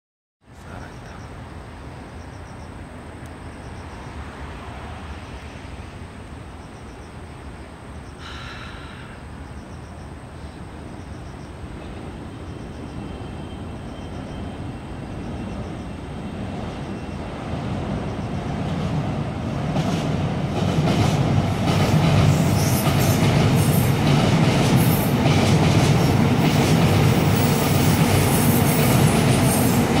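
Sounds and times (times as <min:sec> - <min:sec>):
electric train rumbling: 0:00.5 - 0:30.0.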